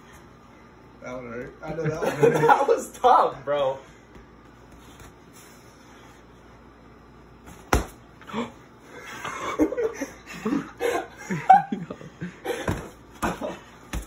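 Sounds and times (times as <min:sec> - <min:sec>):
laughter: 0:01.7 - 0:02.8, 0:09.0 - 0:13.6
boxing glove slaps: 0:07.5 - 0:08.0, 0:12.6 - 0:14.0.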